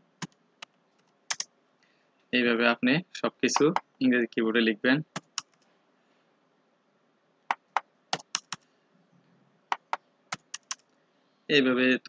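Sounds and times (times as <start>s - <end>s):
keyboard typing: 0.2s - 1.5s, 3.6s - 3.9s, 5.1s - 5.6s, 7.5s - 8.6s, 9.7s - 10.8s.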